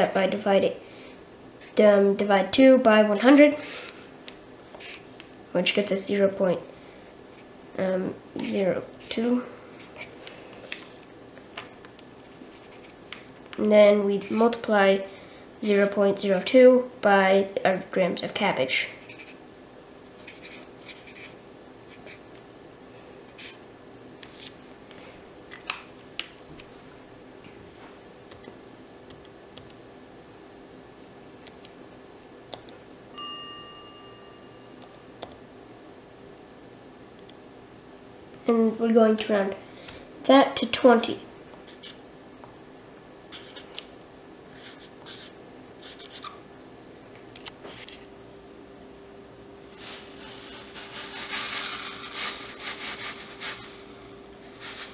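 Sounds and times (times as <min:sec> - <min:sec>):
faint steady hum: 0:00.0 - 0:54.9
marker scratching on paper: 0:04.8 - 0:05.0, 0:12.4 - 0:13.2, 0:19.0 - 0:19.4, 0:20.2 - 0:22.2, 0:23.4 - 0:23.6, 0:41.7 - 0:42.0, 0:43.3 - 0:43.8, 0:44.5 - 0:46.4.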